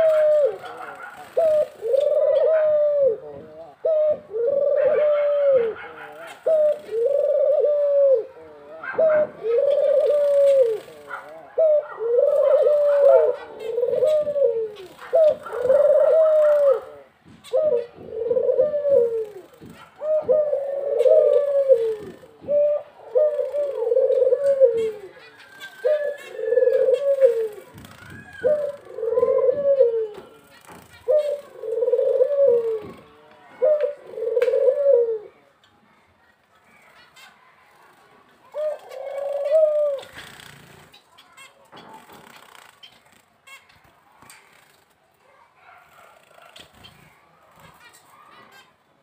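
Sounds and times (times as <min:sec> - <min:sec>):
dove cooing: 0:00.0 - 0:35.5, 0:38.4 - 0:40.4.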